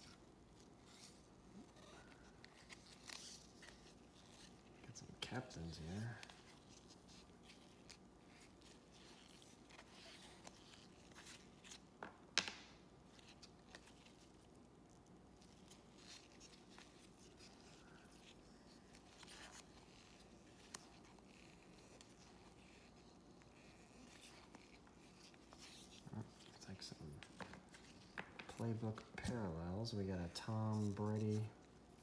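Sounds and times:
trading cards rustling and clicking: 0:15.4 - 0:32.0.

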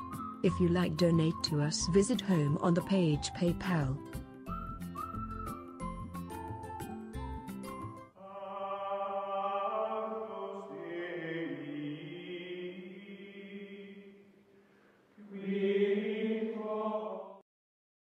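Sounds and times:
slow choral chords: 0:08.2 - 0:14.4, 0:15.2 - 0:17.4.

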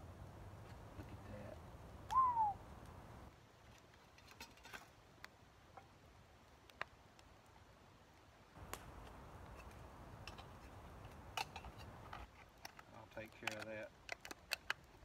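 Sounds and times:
bird call: 0:02.1 - 0:02.6.

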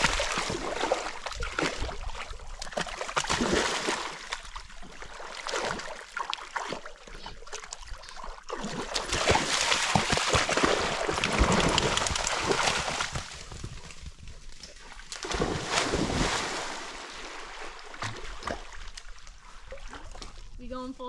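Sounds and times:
dogs splashing in water: 0:00.0 - 0:13.7, 0:14.8 - 0:20.4.

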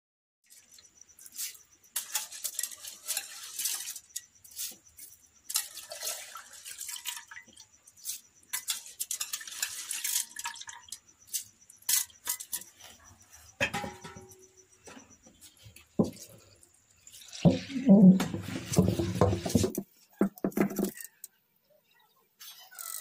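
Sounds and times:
stone grinder scraping and crunching: 0:01.1 - 0:06.6.

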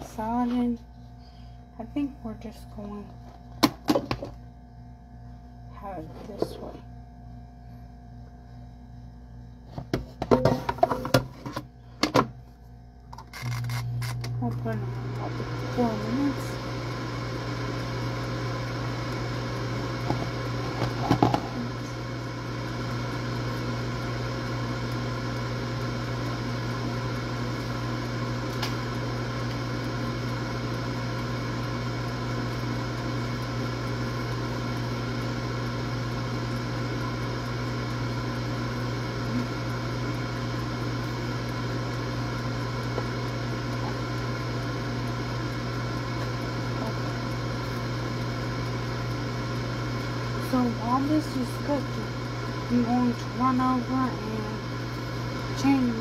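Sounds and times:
air fryer fan hum: 0:00.0 - 0:56.0.

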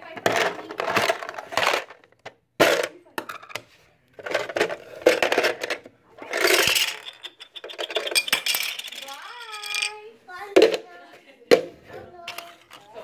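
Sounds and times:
plastic pieces clattering on table: 0:00.1 - 0:03.6, 0:04.2 - 0:10.0.

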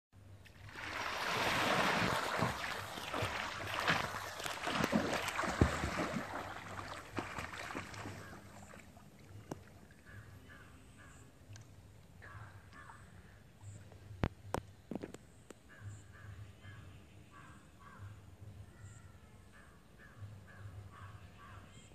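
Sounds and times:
water lapping: 0:00.4 - 0:10.4
water splashing from swimmer: 0:00.5 - 0:09.8.

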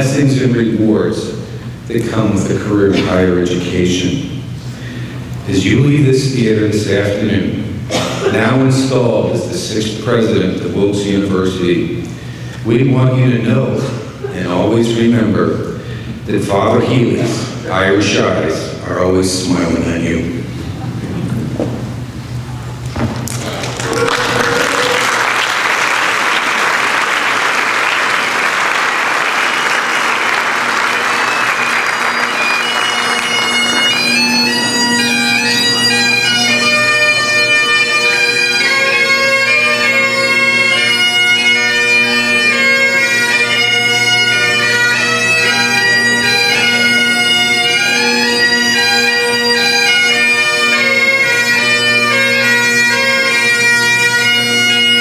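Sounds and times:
audience applause: 0:23.2 - 0:34.9
bagpipes playing: 0:24.2 - 0:55.0.

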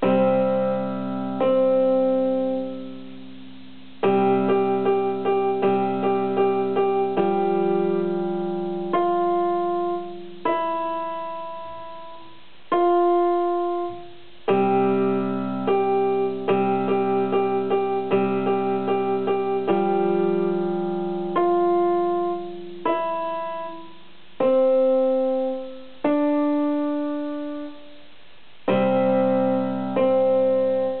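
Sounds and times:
electronic keyboard playing a tune: 0:00.0 - 0:27.9, 0:28.7 - 0:31.0.

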